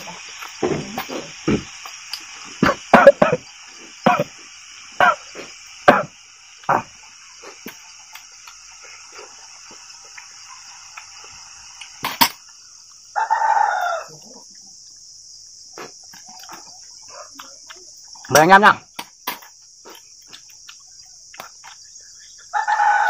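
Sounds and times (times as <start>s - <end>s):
insects chirring: 0.0s - 23.0s
rooster crowing: 13.1s - 14.5s, 22.5s - 23.0s.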